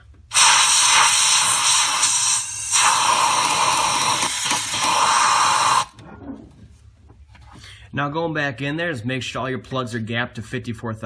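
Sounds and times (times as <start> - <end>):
compressed air blow gun hissing: 0.3 - 5.9.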